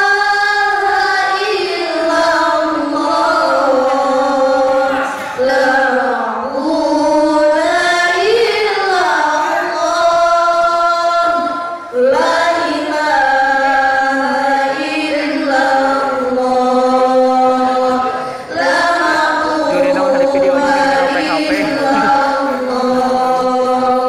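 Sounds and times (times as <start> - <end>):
girls chanting in unison: 11.3 - 19.8.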